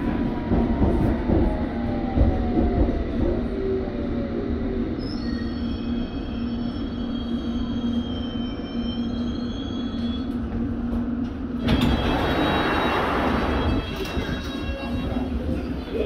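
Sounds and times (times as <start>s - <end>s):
train hum and rumble: 0.0s - 16.0s
wheels and brakes squealing: 4.9s - 10.5s, 11.6s - 16.0s.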